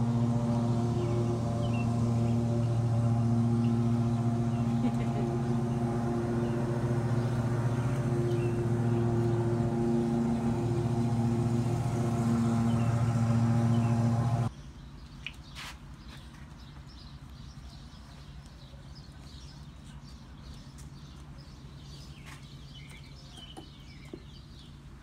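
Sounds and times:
loud buzzy low hum: 0.0s - 14.5s.

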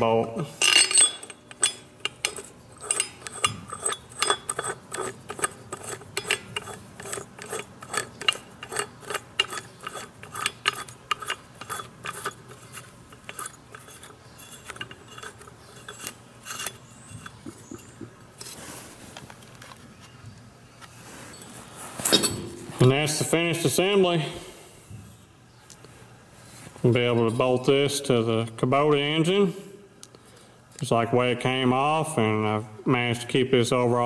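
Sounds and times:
metallic clicks and scraping: 0.6s - 19.8s.

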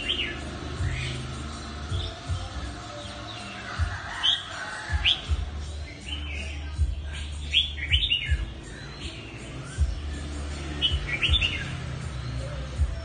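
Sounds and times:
bird singing whistled phrases: 7.3s - 13.0s.

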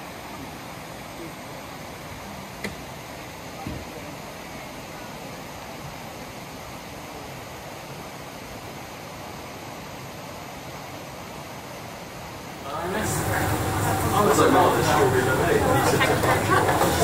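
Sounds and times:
faint murmur of voices: 0.1s - 8.0s, 12.6s - 17.0s
background hiss: 11.2s - 17.0s.

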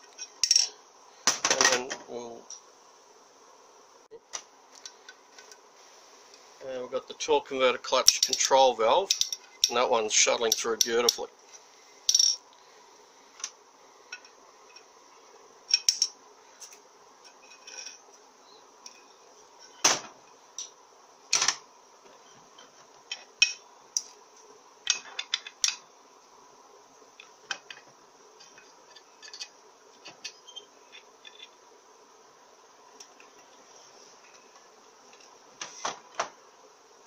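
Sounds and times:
metal parts clinking on tray: 9.1s - 9.8s.

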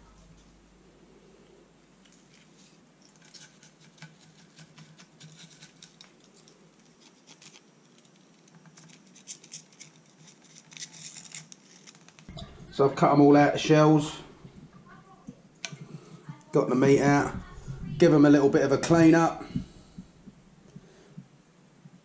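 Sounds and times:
knife scraping shells: 2.0s - 12.3s.

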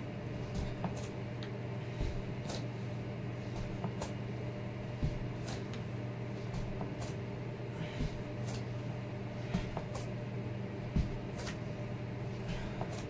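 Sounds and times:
low hum: 0.0s - 13.0s
foot thud on floor mat: 0.4s - 1.2s, 1.9s - 2.7s, 3.4s - 8.8s, 9.4s - 10.2s, 10.8s - 11.8s.

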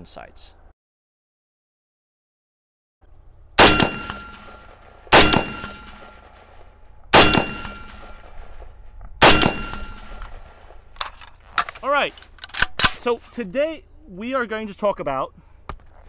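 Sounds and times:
rifle shots with ringing echo: 3.6s - 10.9s.

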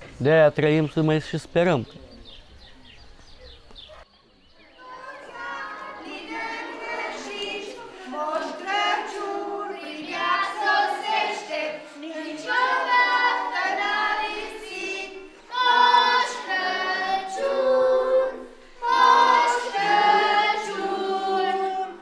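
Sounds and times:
children singing: 4.7s - 22.0s.

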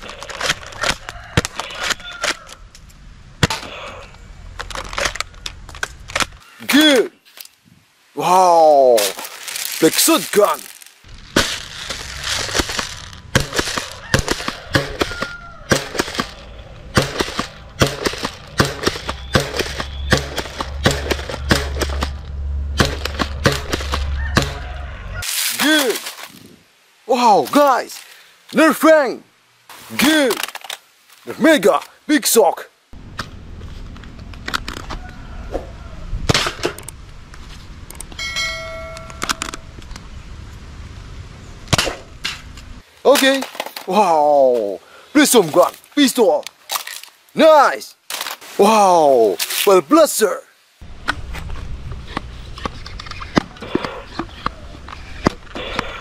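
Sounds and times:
bell-like chime: 38.2s - 39.3s.

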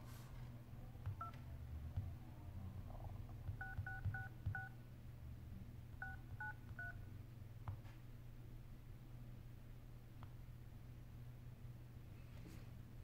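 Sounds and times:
phone keypad dialing tones: 1.0s - 1.4s, 3.5s - 4.7s, 6.0s - 7.0s.

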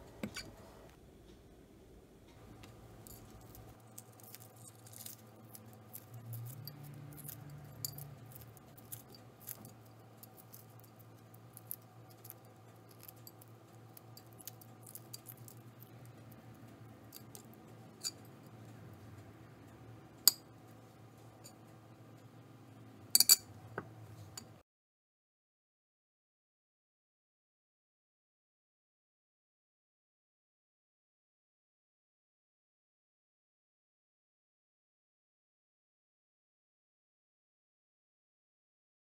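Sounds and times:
eggshell crackling: 2.4s - 18.8s.

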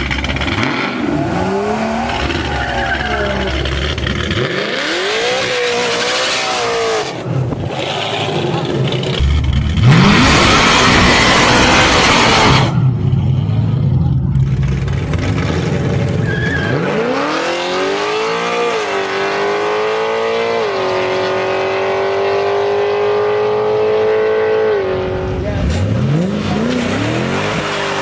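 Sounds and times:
loud rush of noise: 0.0s - 16.2s
drag racing car engine revving: 0.0s - 28.0s.

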